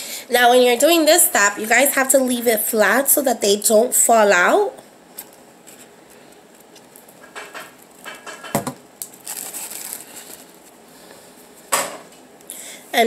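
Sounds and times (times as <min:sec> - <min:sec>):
sharp knock on table: 0:08.5 - 0:08.8
paper rustle: 0:09.1 - 0:10.8.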